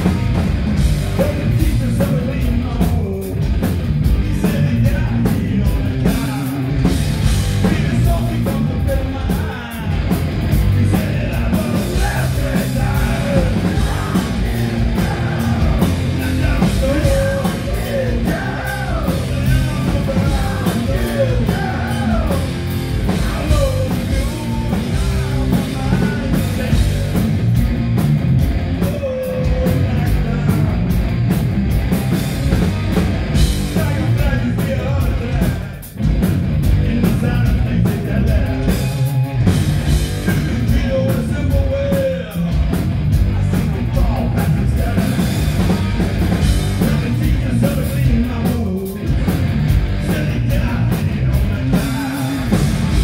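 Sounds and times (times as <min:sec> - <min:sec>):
distorted electric guitars: 0:00.0 - 0:53.0
heavy rock band playing: 0:00.0 - 0:53.0
person singing: 0:10.8 - 0:27.4.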